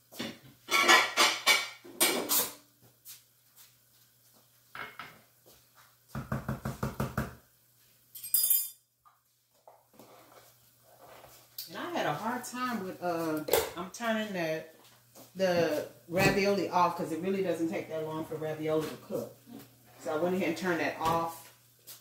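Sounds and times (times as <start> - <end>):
dishes and pots clattering: 0.2 - 2.6.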